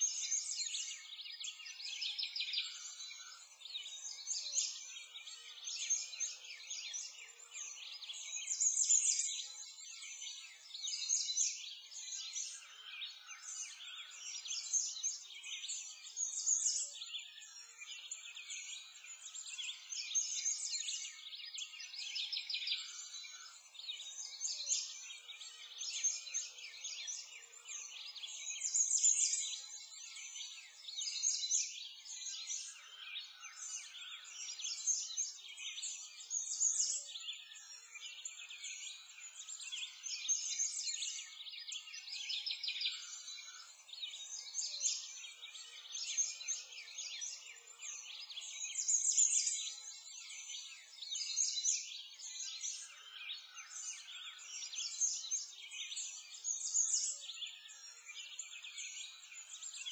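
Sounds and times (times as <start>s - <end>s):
birds chirping and singing: 0.0s - 59.9s.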